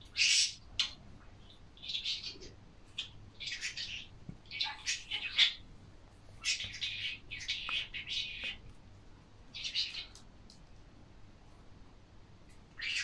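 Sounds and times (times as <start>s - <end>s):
budgerigar chattering: 0.1s - 5.6s, 6.4s - 8.6s, 9.5s - 10.1s, 12.8s - 13.0s.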